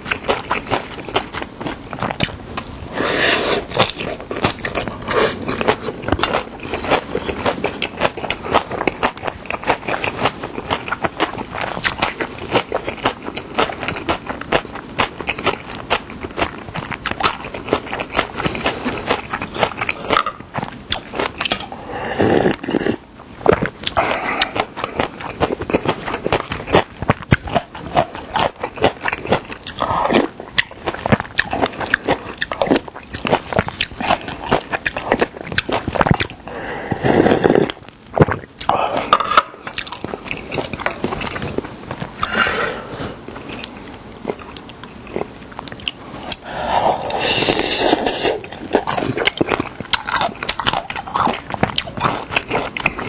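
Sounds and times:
crunchy chewing: 0.0 - 53.0
slurping soup: 2.9 - 5.5, 36.5 - 37.8, 46.2 - 49.3.

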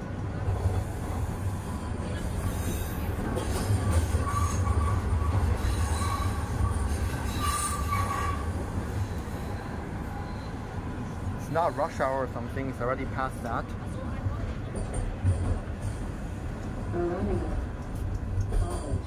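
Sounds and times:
subway train rumble: 0.0 - 19.0
high-pitched wheel squeals: 4.0 - 10.7.

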